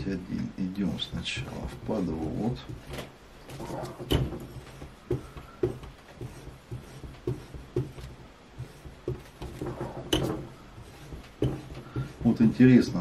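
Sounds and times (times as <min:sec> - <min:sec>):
stone scraping on blade: 0:03.5 - 0:13.0.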